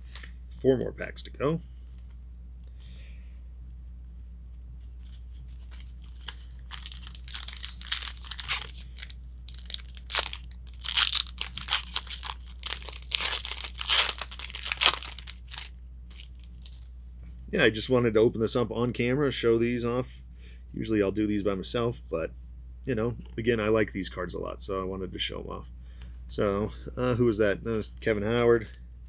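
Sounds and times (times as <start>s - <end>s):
card pack wrapper tearing: 5.6s - 16.8s.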